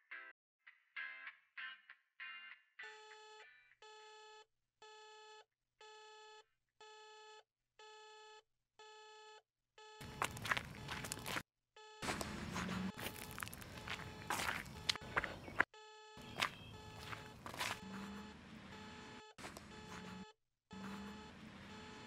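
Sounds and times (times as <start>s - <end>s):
electronic alarm beeping: 10.0s - 11.4s, 12.0s - 15.6s, 16.2s - 22.0s.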